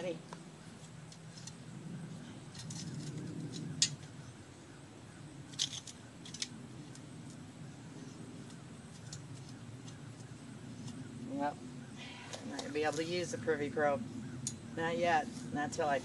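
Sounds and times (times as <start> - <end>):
metal probe clicking and scraping: 1.1 - 1.6, 2.5 - 4.1, 5.5 - 7.0, 8.4 - 11.0.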